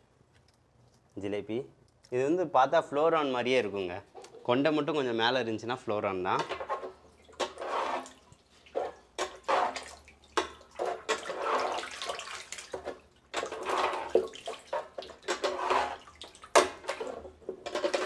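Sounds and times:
muddy water sloshing: 7.1s - 17.2s.

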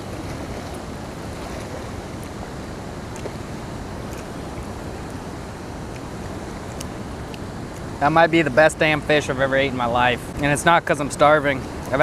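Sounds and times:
water rushing over spillway: 0.0s - 9.4s.

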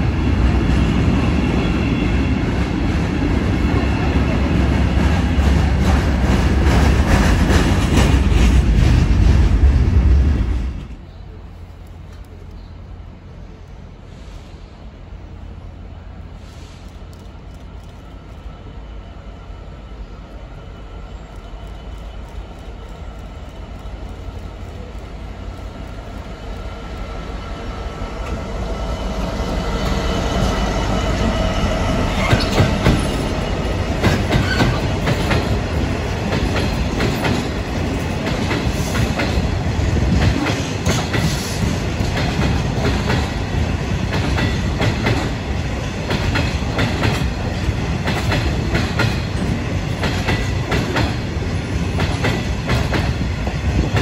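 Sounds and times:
freight train passing: 0.0s - 54.0s
wheels clickety-clack over rail joints: 0.4s - 12.8s, 28.1s - 54.0s.

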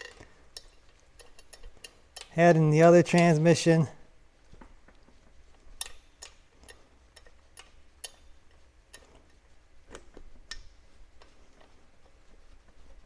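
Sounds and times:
light metal clicks of bolts: 0.0s - 3.4s, 5.6s - 9.3s.

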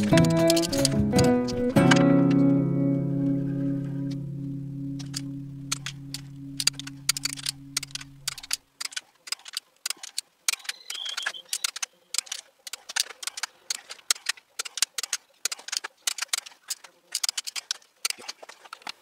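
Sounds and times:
background music: 0.0s - 8.4s.

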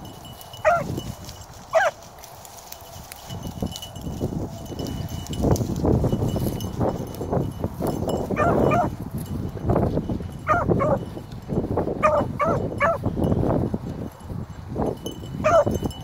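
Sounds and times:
footsteps through dry brush: 0.0s - 16.0s
hound baying: 0.6s - 1.0s, 1.7s - 2.1s, 8.3s - 9.0s, 10.4s - 11.1s, 12.0s - 13.0s, 15.4s - 15.8s.

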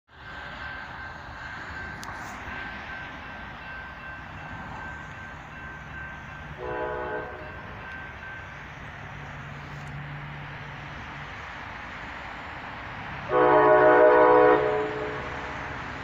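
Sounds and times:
crossing bell ringing: 0.1s - 10.8s, 13.2s - 16.0s
train horn blast: 6.6s - 7.6s, 13.3s - 15.5s.

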